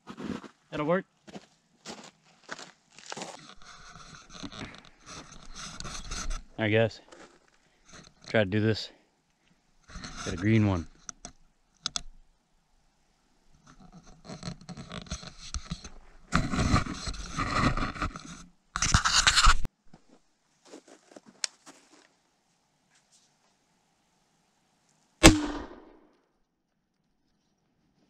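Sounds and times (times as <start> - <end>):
scraping and rustling handling noises: 1.9 - 8.8, 13.6 - 22.2.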